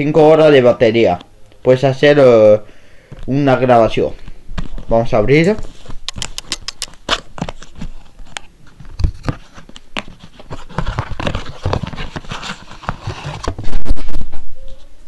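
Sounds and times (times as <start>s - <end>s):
cardboard scraping and rustling: 5.6s - 14.3s.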